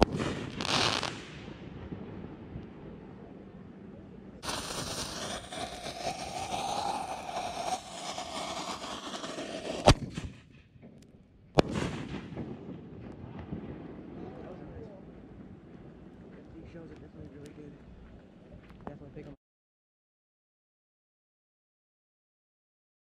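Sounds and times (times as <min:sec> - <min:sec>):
firework fuse hissing: 0:00.0 - 0:01.4, 0:04.4 - 0:10.5
firework shell bursting: 0:00.0 - 0:01.5, 0:04.4 - 0:11.0
firework crackling: 0:00.0 - 0:02.1, 0:04.4 - 0:10.7, 0:11.6 - 0:14.5
firework launch bang: 0:00.0 - 0:02.2, 0:04.4 - 0:11.0, 0:11.6 - 0:14.4.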